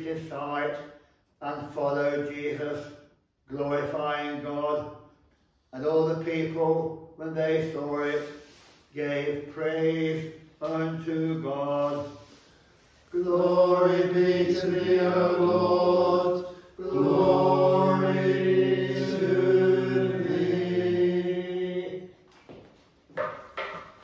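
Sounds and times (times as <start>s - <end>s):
voices chanting long notes: 13.2s - 22.1s.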